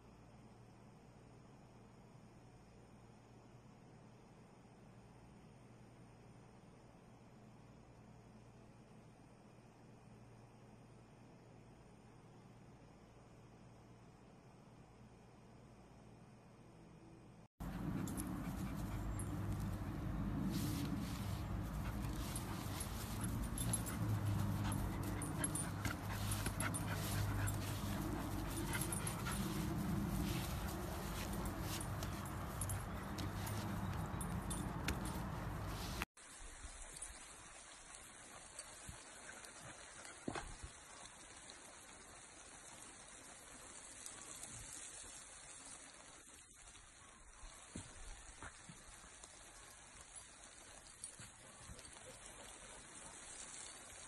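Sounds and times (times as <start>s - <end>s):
lawn sprinkler hissing: 17.9s - 32.6s, 35.6s - 54.0s.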